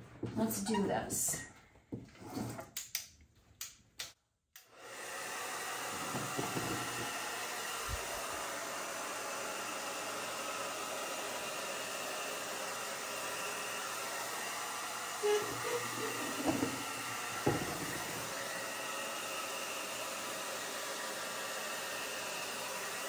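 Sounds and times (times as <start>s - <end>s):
hair dryer blowing: 4.6s - 23.0s.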